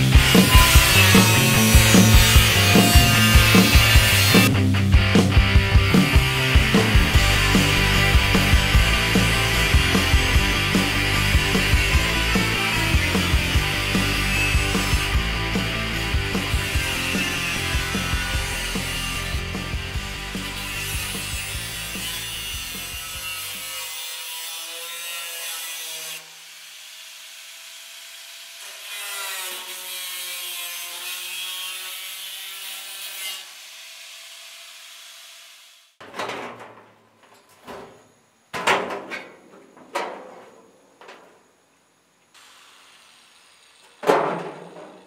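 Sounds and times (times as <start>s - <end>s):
angle grinder cutting metal: 0.0s - 36.0s, 42.4s - 45.0s
sheet metal knocks: 38.6s - 41.4s.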